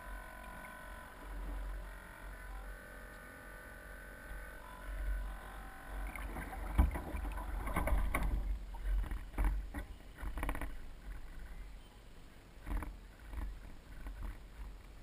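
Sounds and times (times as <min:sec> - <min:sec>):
small waves slapping hull: 0:06.0 - 0:11.5.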